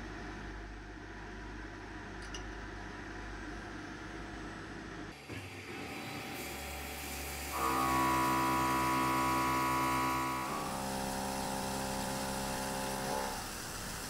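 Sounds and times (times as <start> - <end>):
milling machine whine: 5.8 - 14.0
coolant spray hiss: 6.3 - 9.4, 10.5 - 14.0.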